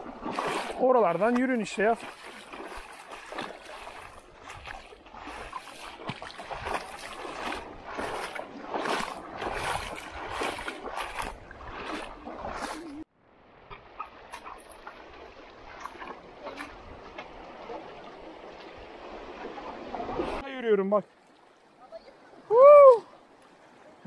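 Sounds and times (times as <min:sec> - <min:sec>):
seawater splashing against rocks: 0:00.0 - 0:13.0.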